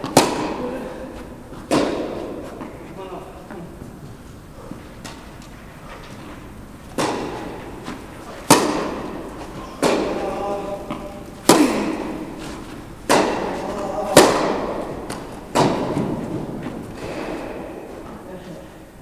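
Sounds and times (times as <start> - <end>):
tennis ball struck by rackets: 0.0 - 0.7, 1.7 - 2.8, 6.9 - 17.9.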